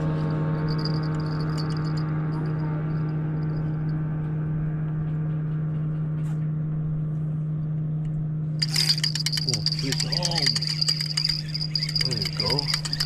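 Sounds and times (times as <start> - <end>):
boat motor humming: 0.0 - 5.3, 8.6 - 13.0.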